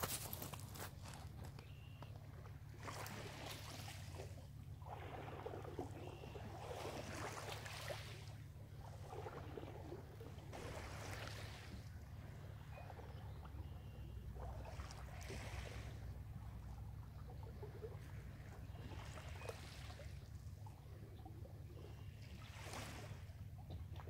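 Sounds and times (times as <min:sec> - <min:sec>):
steady low rumble: 0:00.0 - 0:06.7, 0:08.2 - 0:24.0.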